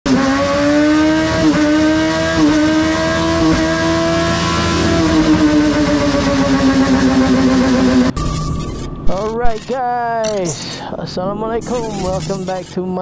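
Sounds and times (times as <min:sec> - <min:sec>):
motorcycle engine accelerating: 0:00.1 - 0:08.2.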